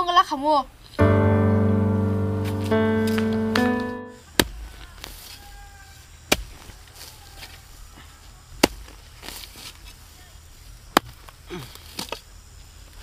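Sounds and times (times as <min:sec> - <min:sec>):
piano chord: 0:01.0 - 0:04.2
bamboo poles being chopped: 0:04.3 - 0:05.4, 0:06.3 - 0:07.6, 0:08.6 - 0:10.0, 0:10.9 - 0:12.3.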